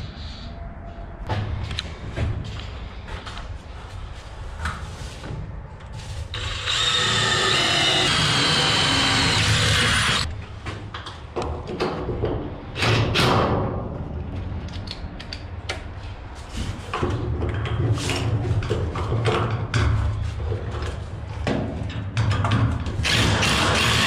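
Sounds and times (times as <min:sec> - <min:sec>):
cordless drill driving screw: 0:06.4 - 0:10.3.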